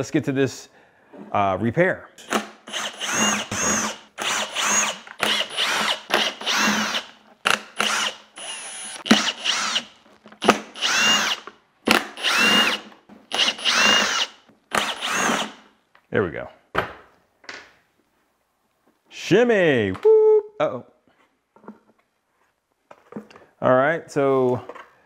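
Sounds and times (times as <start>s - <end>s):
cordless drill whining: 2.3s - 15.6s.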